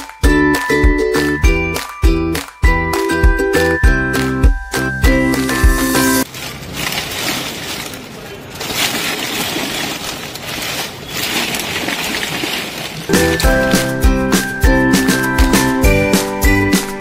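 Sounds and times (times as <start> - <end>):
brittle chips crackling in steel bowl: 6.2 - 13.5.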